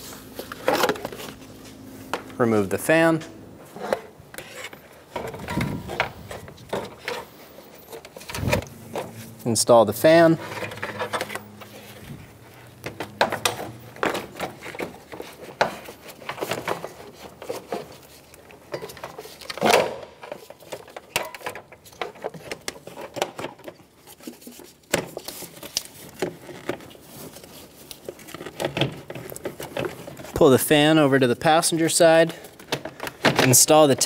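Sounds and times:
hard plastic knocking and scraping: 0:10.4 - 0:18.0.

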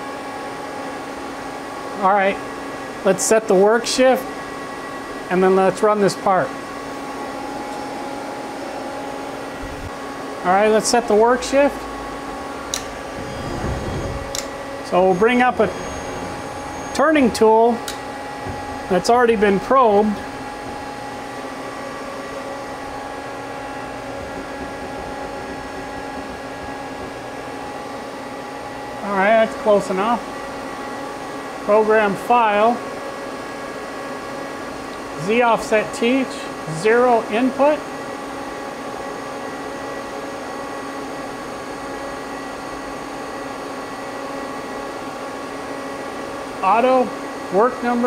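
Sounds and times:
lathe humming at idle: 0:06.5 - 0:32.0
steady machine tones: 0:08.0 - 0:31.9.

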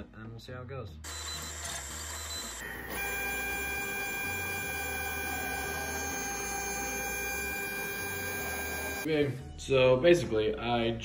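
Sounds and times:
stepper motors whining: 0:01.1 - 0:09.1.

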